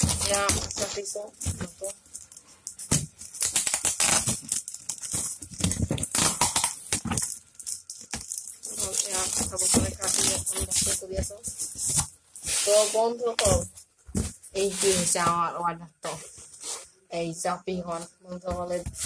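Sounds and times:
packing tape tearing: 0.0 - 13.0.

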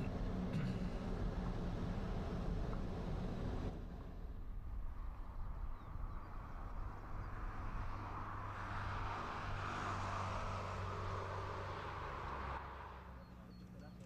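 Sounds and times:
motor vehicle hum: 0.0 - 14.0.

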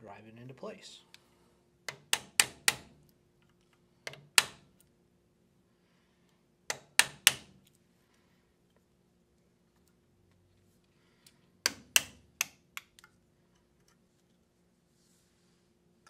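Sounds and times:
hammer tapping metal punch: 1.9 - 3.0, 4.0 - 4.7, 6.7 - 7.6, 11.6 - 12.9.

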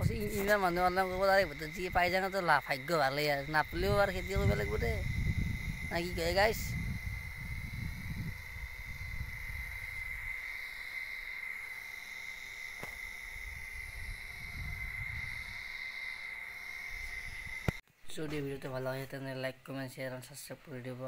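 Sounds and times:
wind rumble on microphone: 0.0 - 10.5, 12.8 - 15.8, 16.9 - 17.8
insect drone: 0.0 - 21.0.

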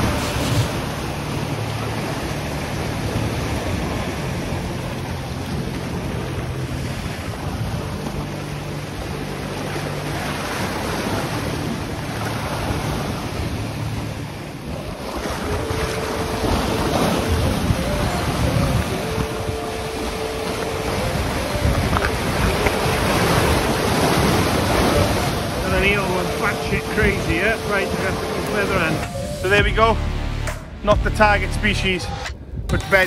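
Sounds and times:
wind buffeting microphone: 10.2 - 29.9
waves breaking on rocks: 14.2 - 29.6.

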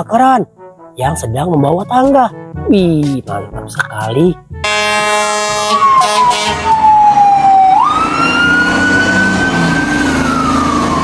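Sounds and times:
horn blaring: 4.4 - 7.4
fire truck siren wailing: 4.6 - 11.0.

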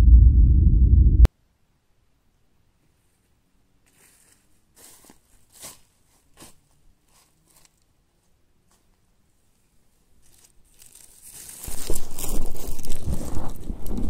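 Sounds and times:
footsteps crunching dry leaves: 3.8 - 7.8, 10.2 - 13.7.

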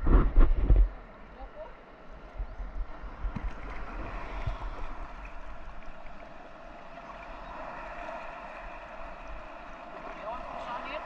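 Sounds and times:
sea water sloshing: 0.7 - 11.0.

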